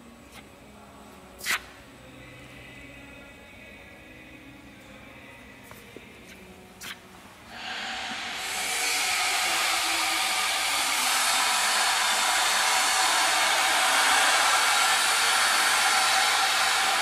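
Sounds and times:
low machine hum: 0.0 - 17.0
loud steady equipment hiss: 7.4 - 17.0.

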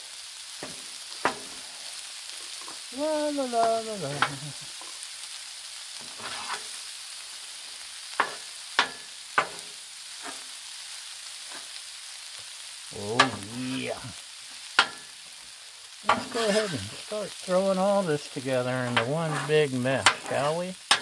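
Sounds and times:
food sizzling on griddle: 0.0 - 21.0
metal spatulas scraping and tapping: 6.1 - 6.7, 8.2 - 9.6, 18.9 - 21.0.

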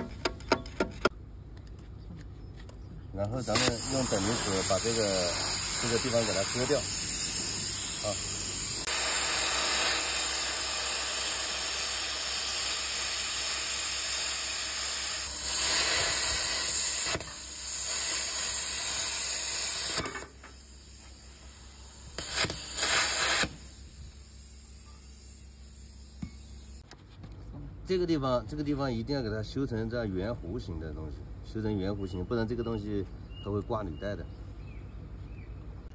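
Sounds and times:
plasma cutter hissing: 3.4 - 26.8.

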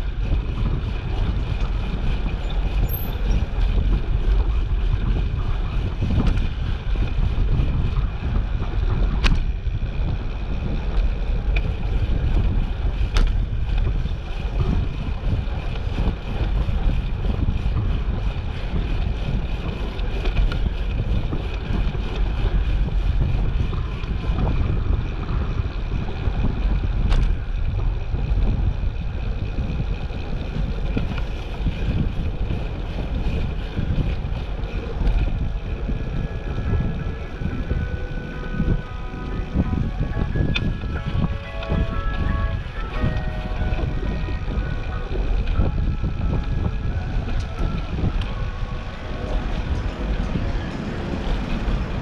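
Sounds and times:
wind buffeting microphone: 0.0 - 52.0.

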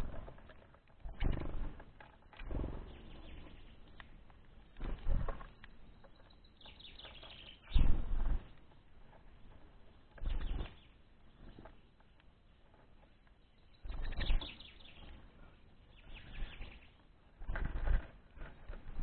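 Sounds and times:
small birds flapping wings: 0.0 - 19.0
faint high chirp: 5.5 - 8.0, 13.5 - 16.9.

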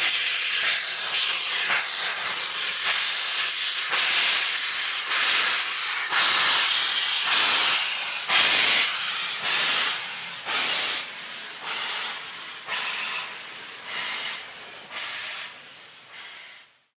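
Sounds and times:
steam locomotive hissing: 0.0 - 16.9.

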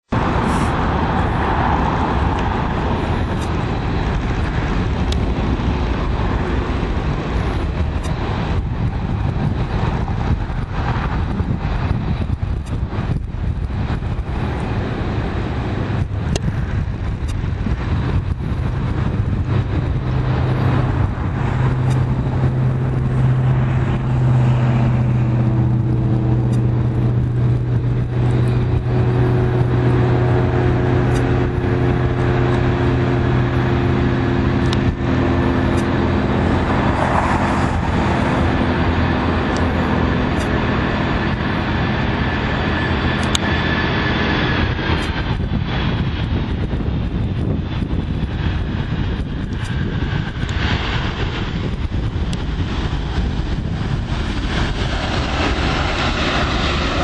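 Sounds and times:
jet engines rumbling: 0.0 - 57.0.

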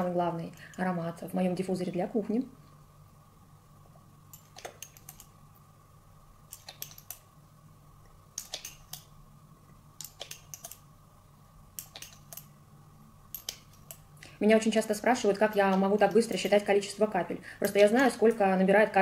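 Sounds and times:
faint steady hum: 0.0 - 19.0
glass pipette clicking on glass: 4.3 - 5.4, 8.3 - 9.1, 10.0 - 10.9, 11.7 - 12.6, 13.3 - 14.1.

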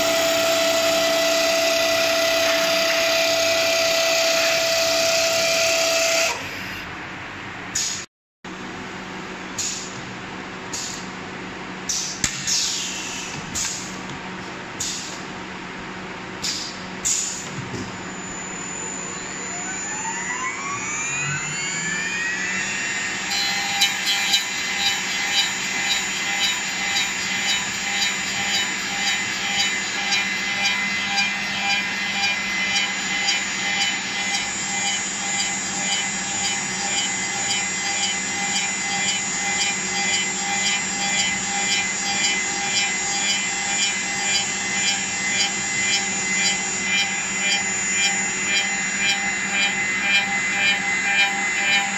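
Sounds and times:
cutter cutting spinning wood: 0.0 - 6.4, 18.5 - 51.9
lathe motor whine: 0.0 - 6.9, 17.8 - 51.9.

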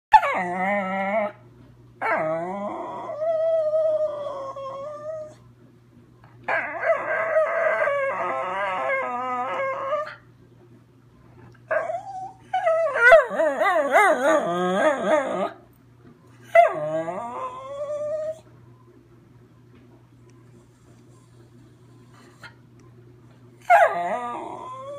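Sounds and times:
dog howling: 0.1 - 1.4, 2.0 - 5.4, 6.5 - 10.2, 11.7 - 15.6, 16.5 - 18.4, 23.6 - 24.9.

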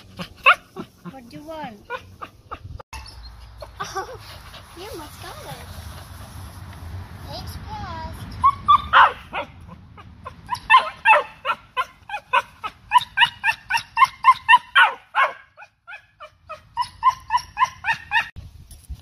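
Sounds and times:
dog barking in high yips: 8.4 - 9.6, 10.5 - 18.3.

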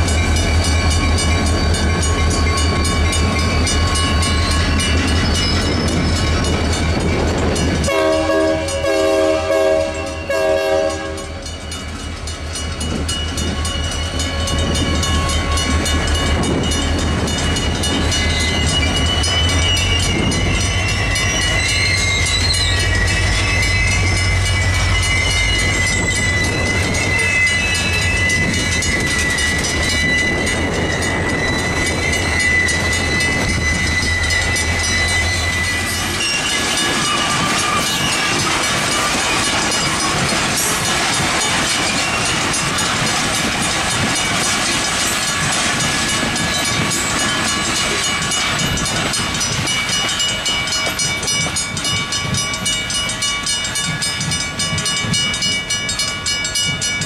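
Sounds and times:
crossing bell ringing: 0.0 - 57.0
diesel locomotives rumbling: 0.0 - 57.0
locomotive horn chord: 7.9 - 11.4
high wheel squeal: 17.5 - 42.9.

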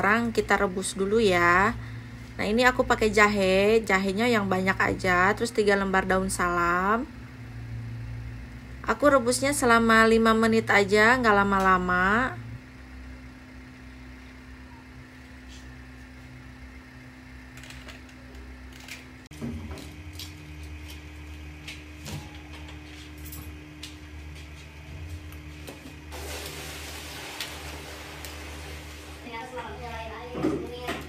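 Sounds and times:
steady low hum: 0.0 - 26.2
water simmering in a pot: 26.1 - 29.7.

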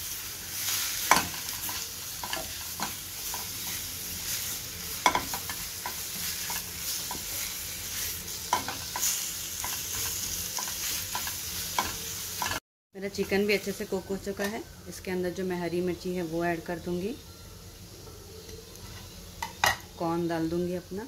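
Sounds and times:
food sizzling in a pan: 0.0 - 21.0
spatula knocking on pan: 5.0 - 6.0.

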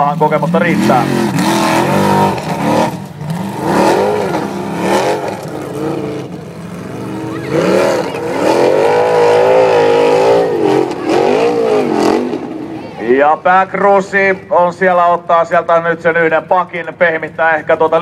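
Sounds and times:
buggy engine revving hard: 0.0 - 13.0.

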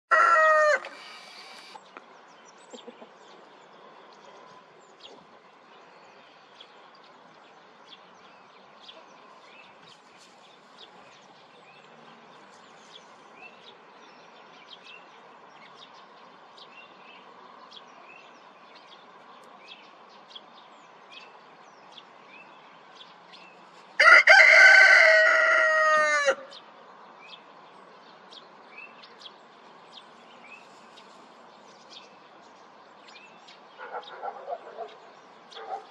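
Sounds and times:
rooster crowing: 0.1 - 1.7, 24.0 - 26.5.

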